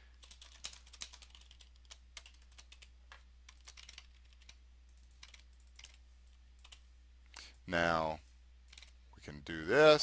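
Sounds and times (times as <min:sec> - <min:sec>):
low electrical hum: 0:00.0 - 0:10.0
typing on a keyboard: 0:00.2 - 0:02.9, 0:03.5 - 0:06.0, 0:06.6 - 0:06.8, 0:08.7 - 0:08.9.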